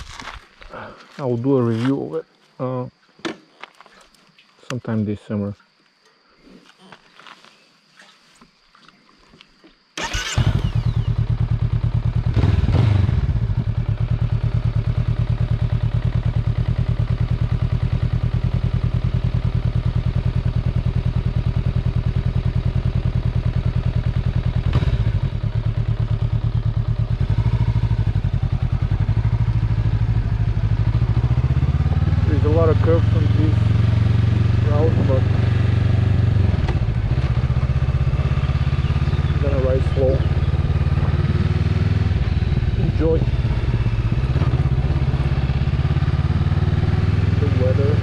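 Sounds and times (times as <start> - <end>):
motorcycle engine starting and idling: 10.0 - 48.0.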